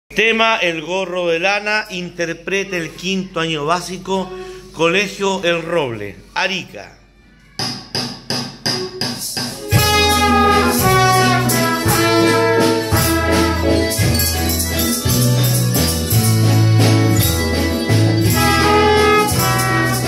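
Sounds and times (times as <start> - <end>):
metallophones: 8.6 - 20.0
school band playing: 8.6 - 20.0
tambourine: 9.0 - 20.0
trumpets playing melody: 9.6 - 14.6, 17.4 - 20.0.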